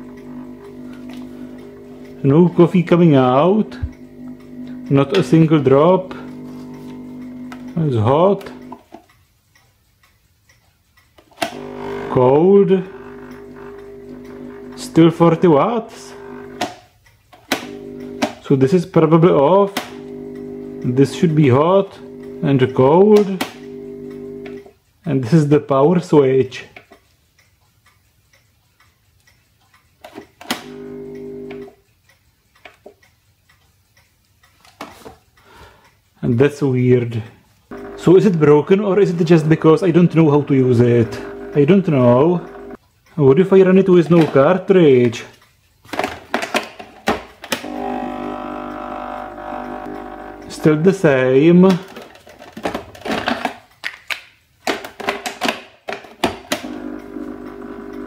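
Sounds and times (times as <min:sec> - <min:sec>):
coffee machine pump buzzing: 0:00.0 - 0:08.8, 0:11.4 - 0:16.8, 0:17.5 - 0:18.5, 0:19.2 - 0:24.6, 0:30.6 - 0:31.7, 0:37.7 - 0:42.8, 0:47.6 - 0:51.4, 0:56.5 - 0:58.0
click: 0:06.1 - 0:11.6, 0:26.7 - 0:36.0, 0:47.4 - 0:47.8
plastic clicks and knocks: 0:45.9 - 0:47.7, 0:51.7 - 0:56.7.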